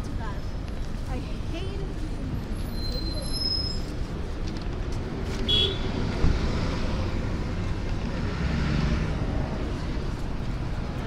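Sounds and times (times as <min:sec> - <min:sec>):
vehicles passing: 0:00.0 - 0:11.0
short high squeak: 0:02.7 - 0:04.0.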